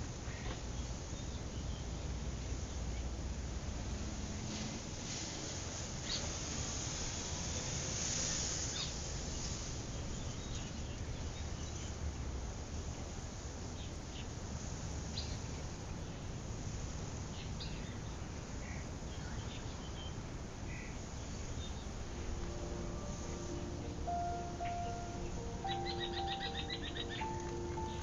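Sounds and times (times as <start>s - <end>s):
low outdoor rumble: 20.9s - 28.0s
high bird-like chirps: 22.5s - 28.0s.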